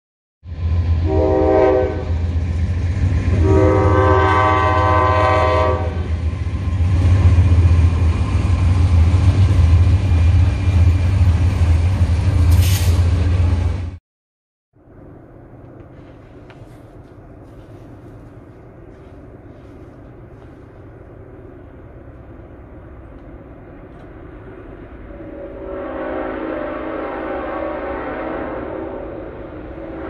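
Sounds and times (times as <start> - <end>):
train air horn blasts: 1.0 - 2.2, 3.3 - 6.2, 25.1 - 30.0.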